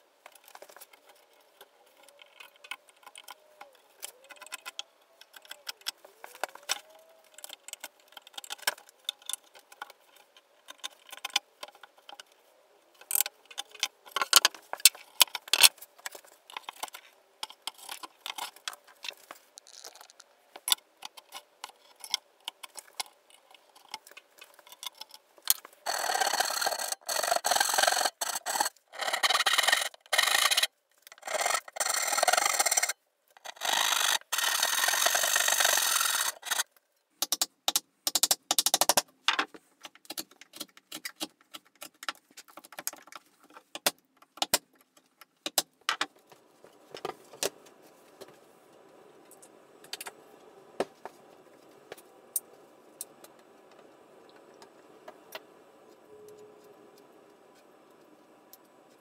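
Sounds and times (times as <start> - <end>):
hand saw cutting wood: 25.9 - 36.6.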